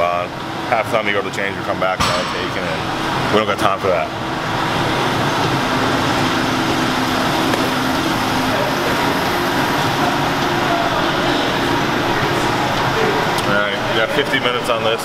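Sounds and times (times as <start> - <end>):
exercise machines running: 0.0 - 15.0
ventilation noise: 0.0 - 15.0.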